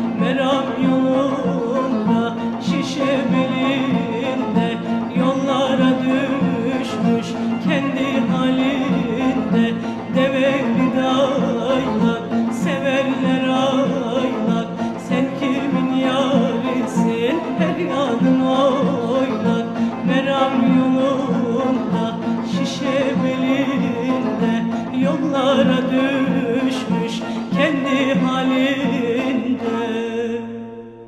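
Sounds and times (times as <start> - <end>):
folk instrumental ensemble: 0.0 - 31.0
woman singing: 0.0 - 31.0.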